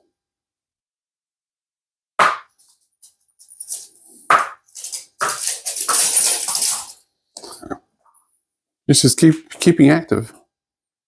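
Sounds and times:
rapid rattling skitter on floor: 4.7s - 7.0s.

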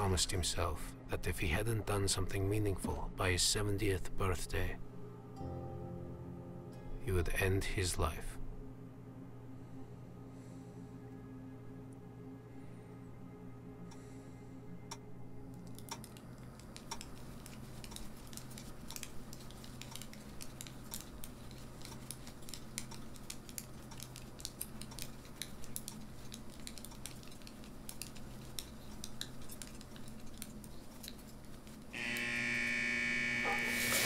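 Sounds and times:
low steady hum: 0.0s - 34.0s
knitting needles clicking: 15.5s - 32.0s
loud electric buzzer: 32.0s - 34.0s.

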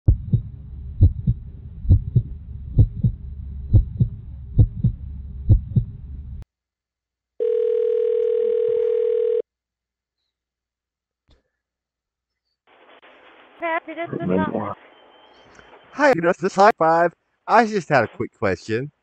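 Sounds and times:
heartbeat thumps: 0.0s - 6.4s
low rumbling drone: 0.1s - 6.4s
telephone dial tone: 7.4s - 9.4s.

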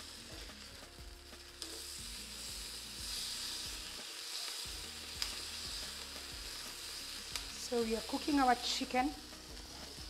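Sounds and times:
chicken sizzling in a pan: 0.0s - 10.0s.

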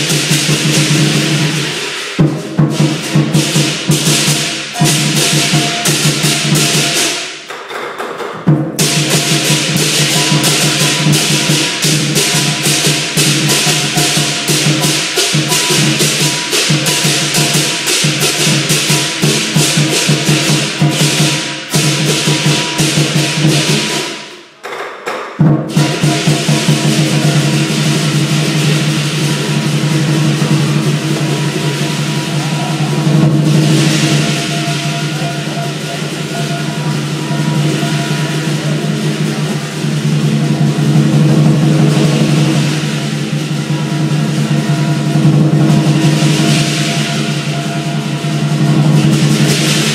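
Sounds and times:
clashing cymbals: 0.0s - 49.9s
drum beaten in fast rhythm: 0.0s - 49.9s.

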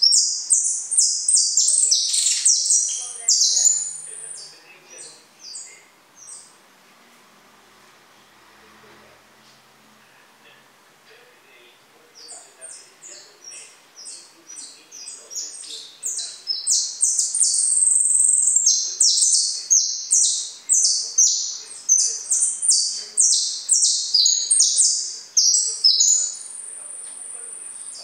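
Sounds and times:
songbird singing: 0.0s - 6.6s, 12.0s - 28.0s.

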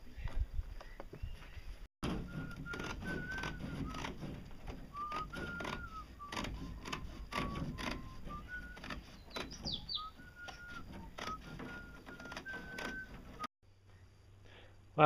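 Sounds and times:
fiberglass cloth crinkling: 2.0s - 13.5s
person whistling a slow tune: 2.3s - 4.2s, 4.8s - 13.5s.

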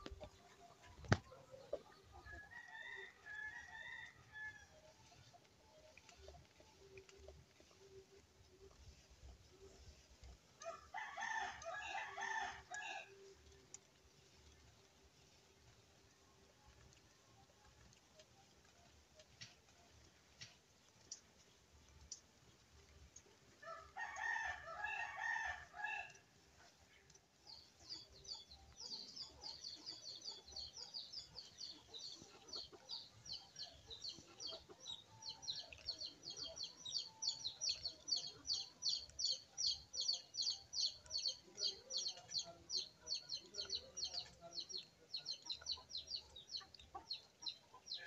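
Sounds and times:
rooster crowing: 23.6s - 26.1s.

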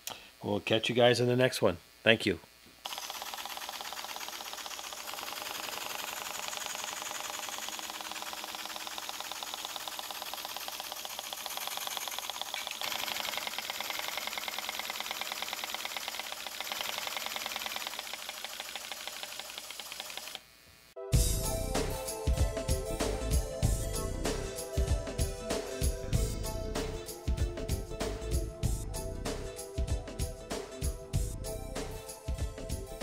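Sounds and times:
model steam engine chuffing: 2.9s - 20.3s.

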